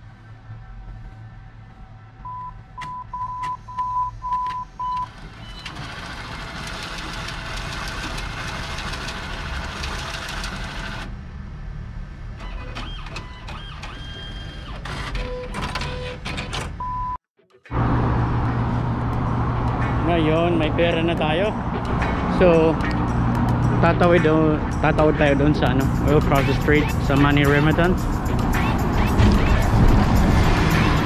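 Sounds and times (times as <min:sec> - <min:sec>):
atm keypad beeps: 0:02.3 - 0:05.7, 0:15.2 - 0:16.2
cash dispenser whirring: 0:05.1 - 0:11.1.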